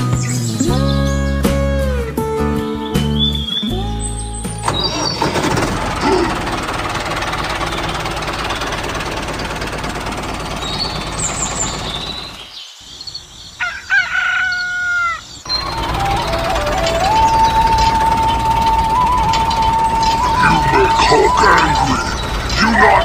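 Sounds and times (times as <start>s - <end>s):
high bird chirps: 2.7s - 5.3s, 10.4s - 23.0s
rattling engine: 4.5s - 12.5s, 15.5s - 23.0s
rooster crowing: 13.6s - 21.6s.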